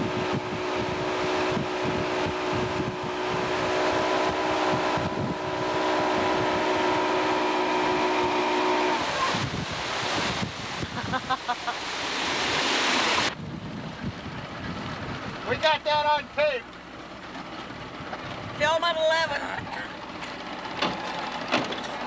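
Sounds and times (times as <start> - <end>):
wind on microphone: 0.0 - 11.5, 12.4 - 15.5
motorboat engine running: 0.0 - 22.0
rushing water: 0.0 - 22.0.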